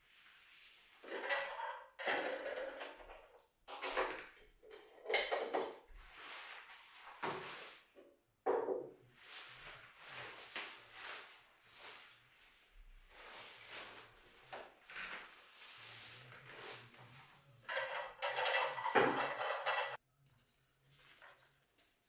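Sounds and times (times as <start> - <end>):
objects knocking on a table: 8.5 - 8.9, 17.7 - 20.0.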